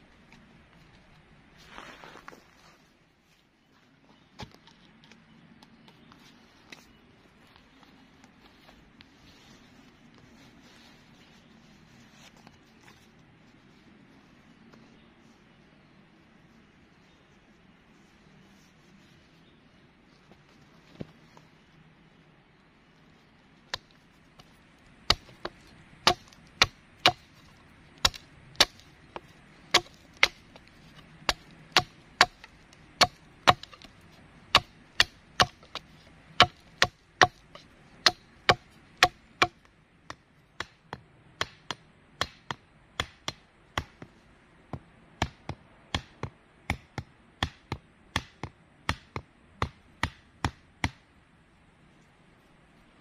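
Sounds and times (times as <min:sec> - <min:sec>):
hatchet chopping wood: 0:23.7 - 0:44.1, 0:44.7 - 0:51.0.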